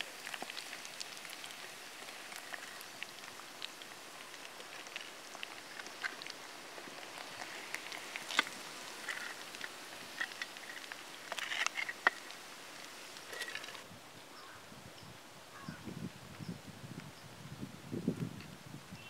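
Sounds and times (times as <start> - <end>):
deep-frying sizzle with pops: 0.0 - 13.8.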